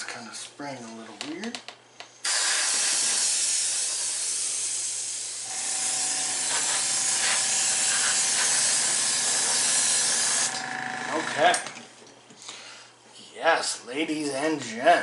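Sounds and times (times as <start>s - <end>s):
airbrush spraying hiss: 2.2s - 10.6s.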